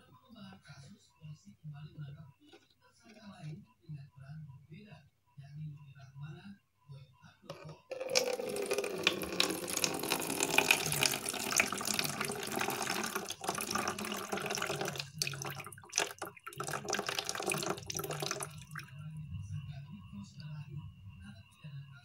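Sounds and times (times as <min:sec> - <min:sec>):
liquid pouring into plastic jar: 0:07.5 - 0:18.9.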